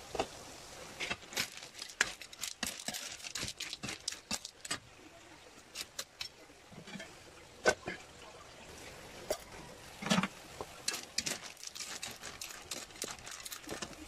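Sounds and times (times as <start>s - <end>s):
metal ladle scraping a wok: 10.1s - 14.0s.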